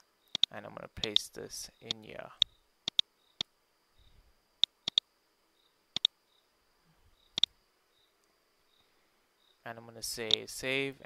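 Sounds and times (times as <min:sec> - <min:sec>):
mouse and keyboard clicks: 0:00.3 - 0:01.2, 0:01.9 - 0:03.0, 0:04.6 - 0:05.0, 0:10.2 - 0:10.4.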